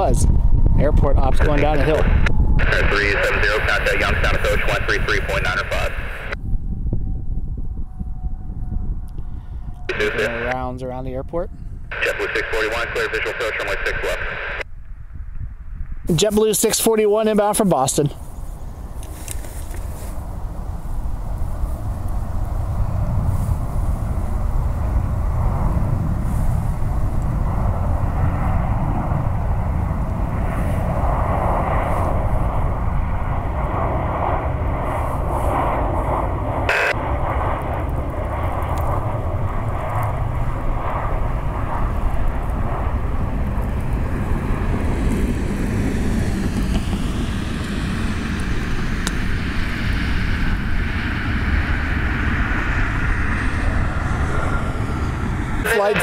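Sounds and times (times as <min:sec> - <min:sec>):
jet airliner engines roaring: 0:00.0 - 0:14.7, 0:15.7 - 0:56.0
turbine whine sliding in pitch: 0:00.8 - 0:10.6, 0:30.2 - 0:56.0.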